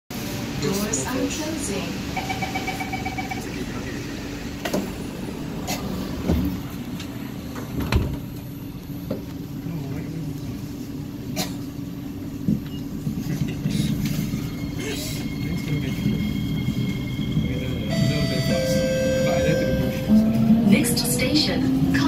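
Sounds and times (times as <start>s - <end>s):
low hum of standing train: 0.1s - 22.0s
train doors knocking shut: 7.5s - 8.5s.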